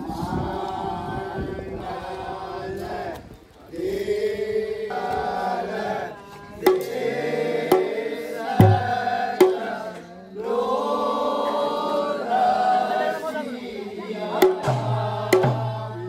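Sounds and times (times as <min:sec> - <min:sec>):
men singing together: 0:00.0 - 0:16.0
dhol drum strokes: 0:06.6 - 0:10.1, 0:14.4 - 0:16.0.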